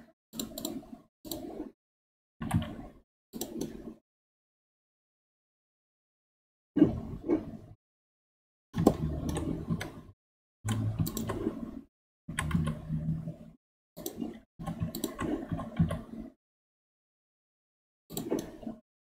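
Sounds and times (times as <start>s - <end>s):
mouse and keyboard clicks: 0.4s - 1.7s, 2.4s - 3.9s, 8.8s - 10.0s, 10.7s - 11.6s, 12.3s - 12.8s, 14.0s - 16.1s, 18.1s - 18.8s.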